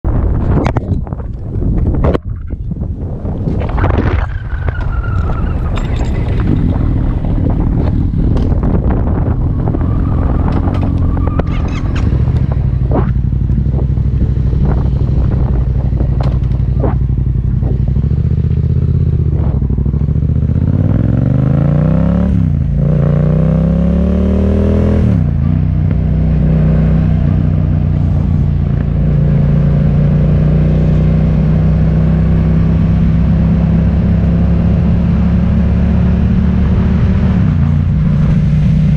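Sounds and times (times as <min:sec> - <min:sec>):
knocks and rattles: 0:03.7 - 0:08.8
vehicle engine running: 0:04.4 - 0:21.8.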